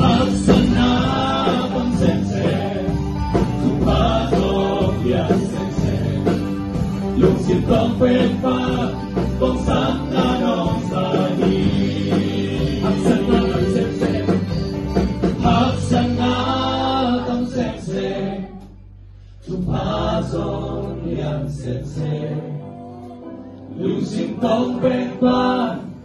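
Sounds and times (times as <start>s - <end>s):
men singing together: 0.0s - 18.7s, 19.4s - 22.7s, 23.7s - 26.0s
band with electric guitar: 0.0s - 26.0s.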